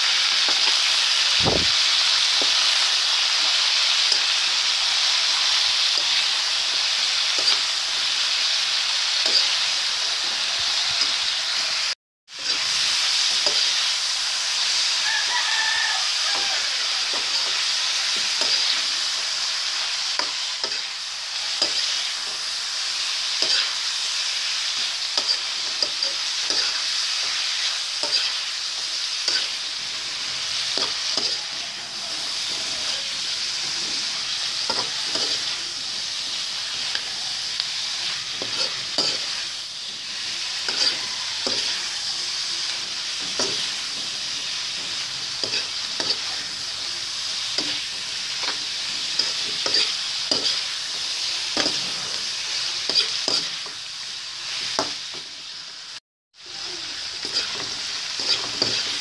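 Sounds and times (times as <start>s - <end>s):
vegetables sizzling in pan: 0.0s - 59.0s
metal spatula scraping pan: 40.2s - 42.0s, 57.2s - 59.0s.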